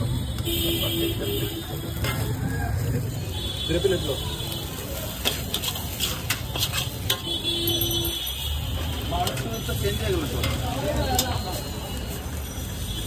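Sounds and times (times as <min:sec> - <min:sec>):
street noise rumble: 0:00.0 - 0:13.0
metal spatula scraping a wok: 0:02.0 - 0:02.4, 0:04.8 - 0:12.2.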